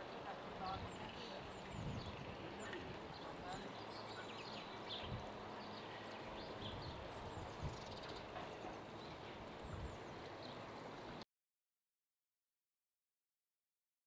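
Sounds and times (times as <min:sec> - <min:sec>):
small birds chirping: 0:00.0 - 0:11.2.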